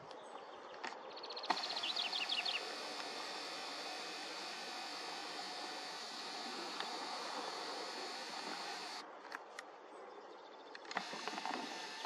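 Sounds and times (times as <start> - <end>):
woodpecker calling: 1.1 - 9.0, 10.8 - 12.0.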